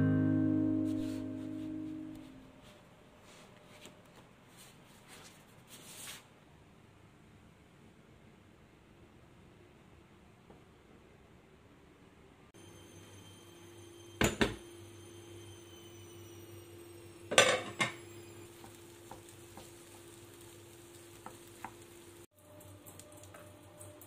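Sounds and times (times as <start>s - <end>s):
cookware clattering: 17.3s - 18.0s
wooden spoon tapping in pan: 18.6s - 20.2s, 21.2s - 21.8s.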